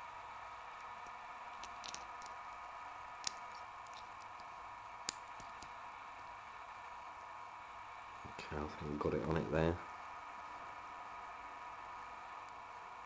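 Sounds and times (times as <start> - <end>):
lock pick clicking and scratching: 0.9 - 2.4, 3.2 - 4.5.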